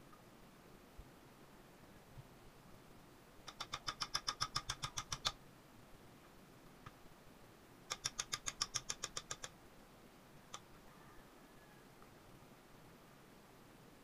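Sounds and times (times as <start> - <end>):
rapid sharp clicks: 3.4 - 5.4, 7.9 - 9.5.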